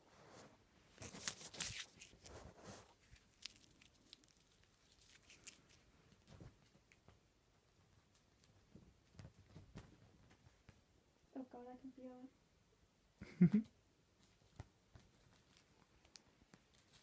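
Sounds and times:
plastic wrapper crinkling: 0:01.0 - 0:02.3, 0:02.9 - 0:06.3.

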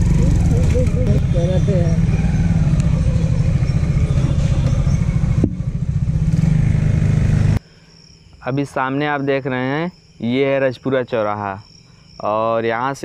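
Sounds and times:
motorcycle engine running: 0:00.0 - 0:07.6.

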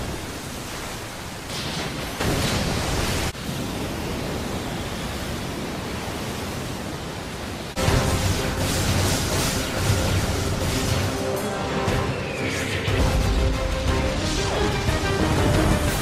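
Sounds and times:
rushing water hiss: 0:04.7 - 0:11.8
music: 0:07.8 - 0:16.0.

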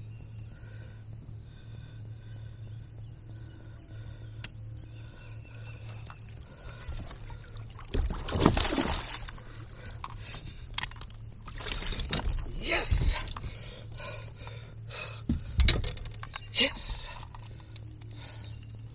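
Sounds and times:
low steady hum: 0:00.0 - 0:18.9
fish splashing in water: 0:07.0 - 0:09.6.

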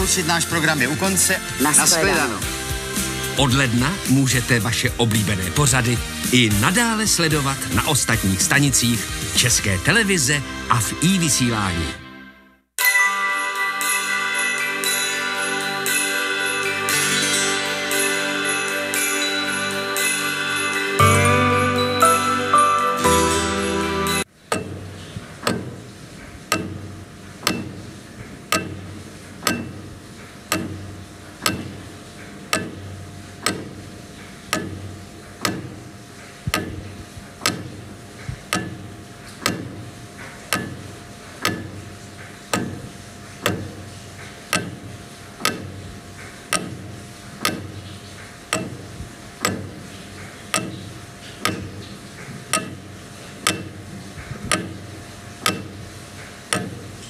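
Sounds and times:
clock ticking: 0:00.0 - 0:11.5, 0:24.2 - 0:57.0.

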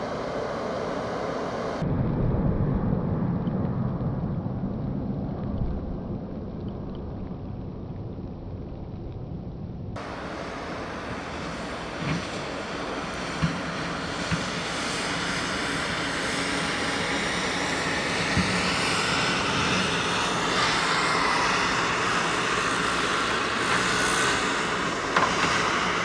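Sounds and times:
diesel engine under load: 0:00.0 - 0:01.8, 0:10.0 - 0:26.0
machine whine: 0:00.0 - 0:26.0.

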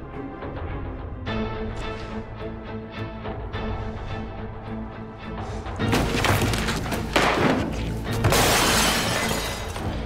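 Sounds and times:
dramatic music score: 0:00.0 - 0:10.0
loud crashing and shattering: 0:05.9 - 0:10.0.

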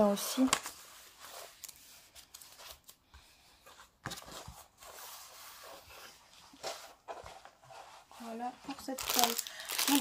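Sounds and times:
rustling and crinkling plastic sheet: 0:04.1 - 0:10.0
sharp crackle: 0:08.9 - 0:10.0.

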